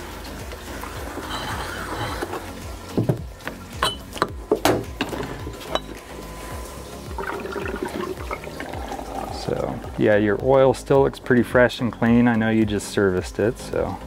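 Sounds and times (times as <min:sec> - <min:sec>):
oil sloshing and draining: 0:00.0 - 0:13.1.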